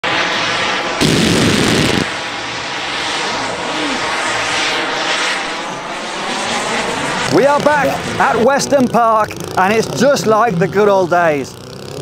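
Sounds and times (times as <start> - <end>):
model aircraft droning overhead: 0.0 - 12.0
pyrotechnic bangs and crackles: 0.3 - 8.2.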